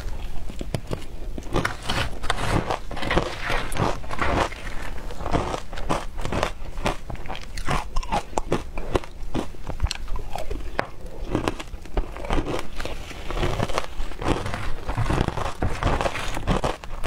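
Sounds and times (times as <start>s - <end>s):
ice being chewed with crunches: 0.0s - 17.0s.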